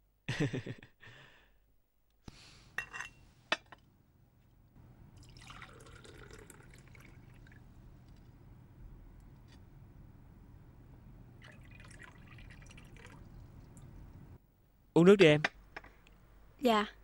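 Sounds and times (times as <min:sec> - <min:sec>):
water pouring into glass: 0:05.2 - 0:07.6, 0:11.4 - 0:13.8.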